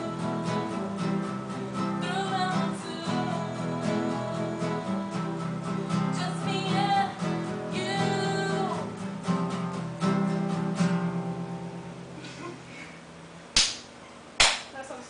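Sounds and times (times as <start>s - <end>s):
person singing: 0.0s - 9.0s
acoustic guitars strumming: 0.0s - 14.3s.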